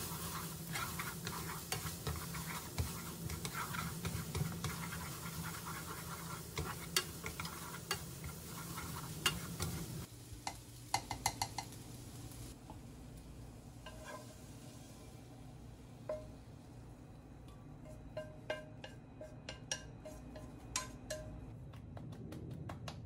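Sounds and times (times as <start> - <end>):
food sizzling in a frying pan: 0.0 - 17.0
chopsticks clicking against pan: 10.4 - 11.8.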